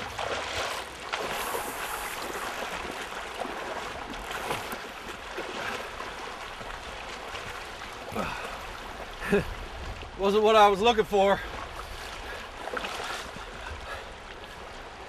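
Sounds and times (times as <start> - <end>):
water rushing over rocks: 0.0 - 15.0.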